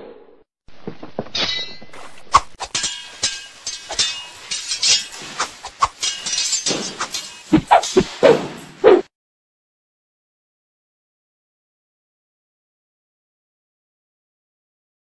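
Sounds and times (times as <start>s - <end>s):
sharp clinks and knocks: 2.7s - 8.2s
short swishes: 6.8s - 9.1s.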